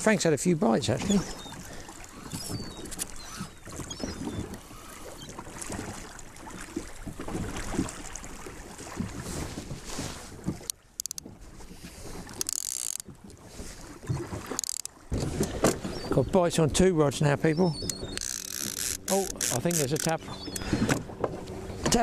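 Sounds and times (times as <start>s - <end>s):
waves slapping boat hull: 0.0s - 22.0s
boat knocks and thuds: 5.3s - 22.0s.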